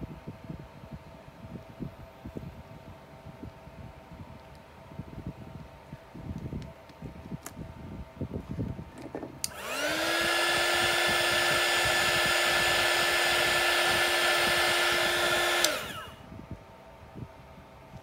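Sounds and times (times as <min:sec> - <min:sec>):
hot-air blower motor whine: 0:00.0 - 0:18.0
hot-air blower switch click: 0:09.4 - 0:10.3, 0:13.8 - 0:16.1.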